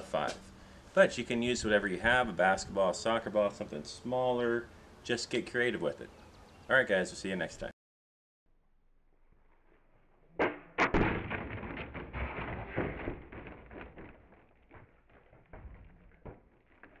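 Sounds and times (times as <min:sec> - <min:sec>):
ball hitting plastic bottles: 0:10.4 - 0:17.0.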